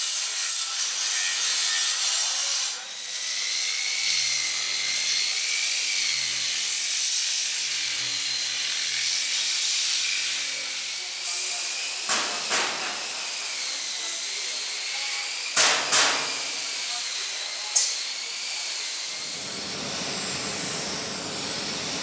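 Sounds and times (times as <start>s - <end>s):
orbital sander on metal: 0.0s - 22.0s
spray gun hissing: 19.1s - 22.0s.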